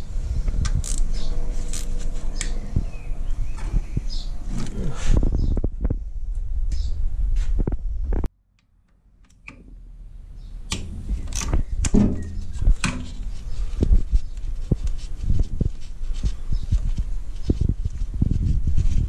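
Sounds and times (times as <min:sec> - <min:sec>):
low handling rumble: 0:00.0 - 0:08.3, 0:09.6 - 0:19.0.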